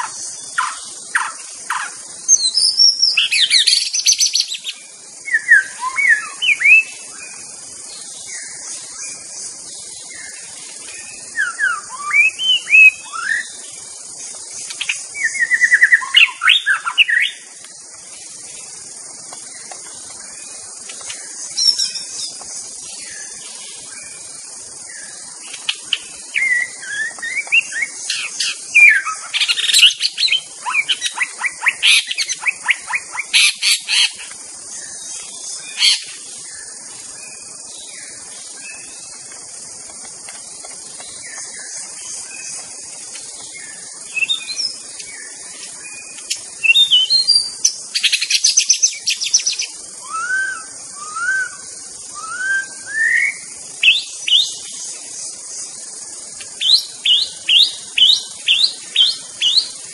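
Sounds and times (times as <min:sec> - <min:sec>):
steady high hiss: 0:00.0 - 0:59.9
bird singing whistled phrases: 0:05.3 - 0:07.0, 0:11.4 - 0:13.6, 0:15.2 - 0:17.4, 0:26.4 - 0:33.4, 0:48.3 - 0:54.6.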